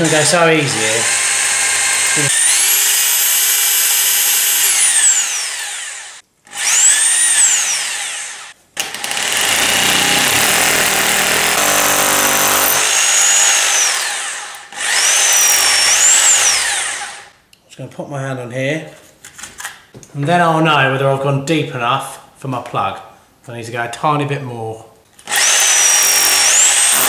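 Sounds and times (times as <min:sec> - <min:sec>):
hammer drill boring into plaster: 0:00.0 - 0:17.3, 0:25.2 - 0:27.0.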